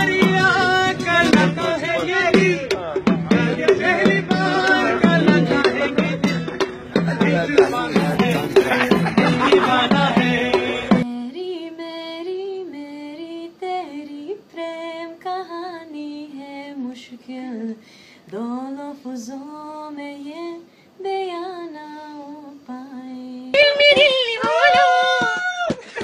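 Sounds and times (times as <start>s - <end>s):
woman singing unaccompanied: 0.0s - 25.0s
person breathing: 17.8s - 18.3s.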